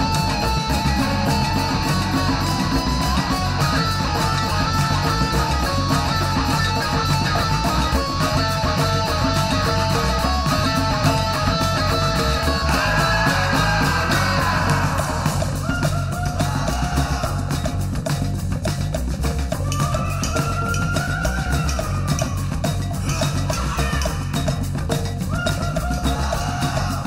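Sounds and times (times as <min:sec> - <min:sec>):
electric guitar riff: 0:00.0 - 0:15.7
rock band steady beat: 0:00.0 - 0:27.0.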